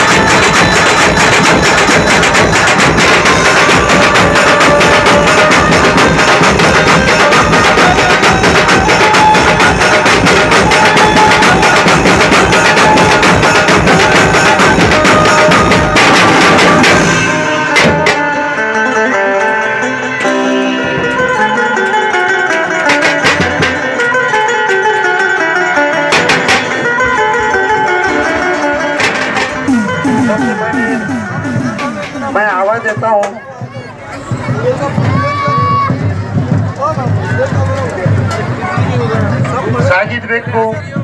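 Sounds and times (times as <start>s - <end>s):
fast drum beat: 0.0s - 18.2s, 29.0s - 40.2s
band music through speakers: 0.0s - 24.6s, 25.7s - 41.0s.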